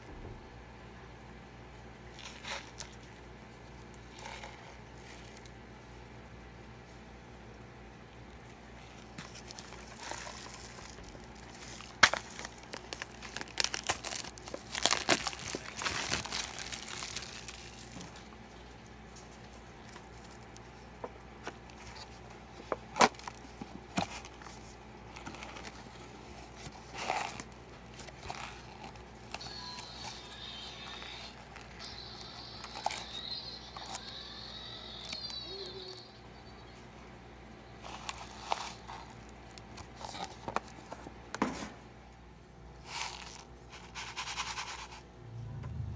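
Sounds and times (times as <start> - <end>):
packaging crinkling and tearing: 2.1 - 5.5, 8.9 - 18.4, 21.4 - 36.0, 37.8 - 41.1.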